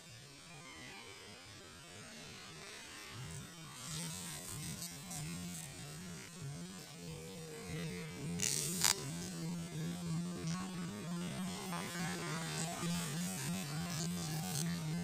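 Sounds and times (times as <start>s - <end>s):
fishing reel whirring: 8.3s - 10.0s.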